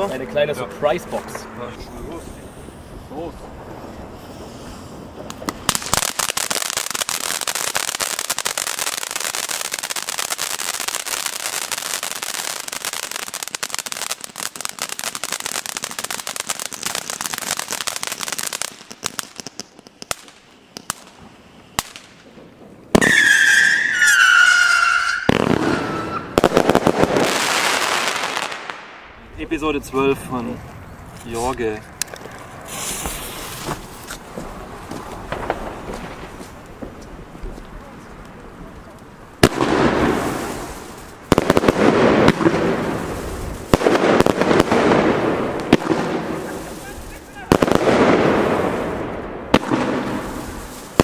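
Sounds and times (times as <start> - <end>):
firework fountain hissing and crackling: 1.7 - 51.0
sharp firework cracks: 3.2 - 29.2, 31.6 - 51.0
falling firework whistle: 22.9 - 26.8
loud rushing hiss: 32.6 - 33.9.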